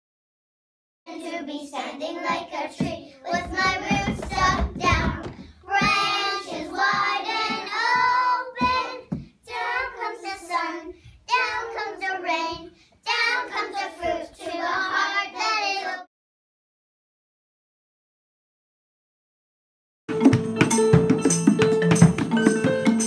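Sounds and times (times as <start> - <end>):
children singing: 1.1 - 16.1.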